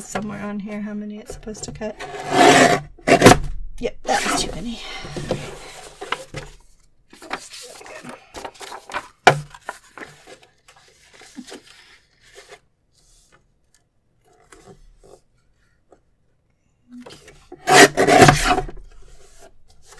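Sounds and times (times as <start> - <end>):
paper sheets rustling and sliding: 4.1 - 13.8.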